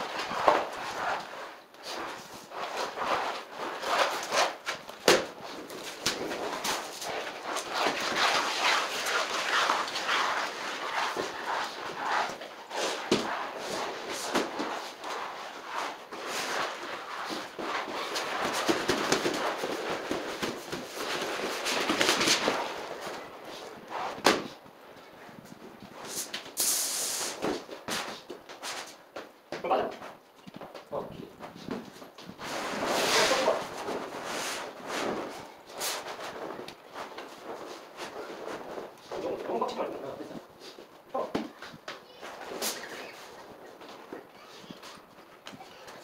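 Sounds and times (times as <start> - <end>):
cloth rubbing on floor: 0.0 - 24.6, 31.4 - 41.3
vinyl sheet rustling: 0.0 - 29.4, 30.1 - 46.0.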